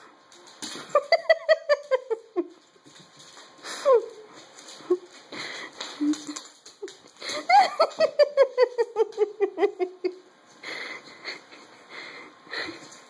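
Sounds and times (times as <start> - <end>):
person laughing: 0.8 - 2.5, 7.2 - 12.8.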